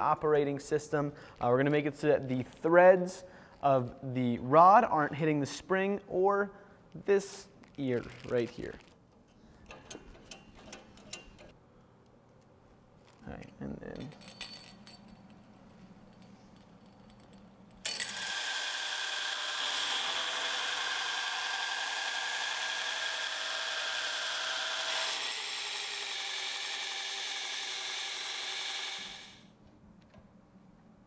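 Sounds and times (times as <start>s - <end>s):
belt grinder grinding steel: 17.8s - 29.4s.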